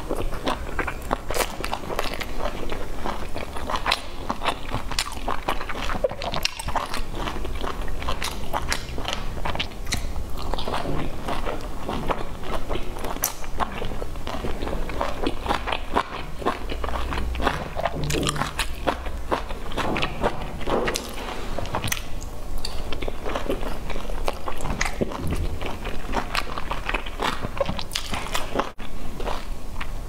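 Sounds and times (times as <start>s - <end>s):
chewing and biting dumplings: 0.0s - 30.0s
mouth clicks and smacks: 8.0s - 11.0s.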